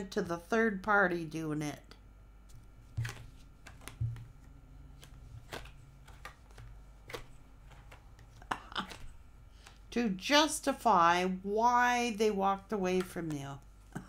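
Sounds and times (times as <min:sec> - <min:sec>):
cards clicking on a table: 0:02.5 - 0:04.3, 0:05.0 - 0:09.8.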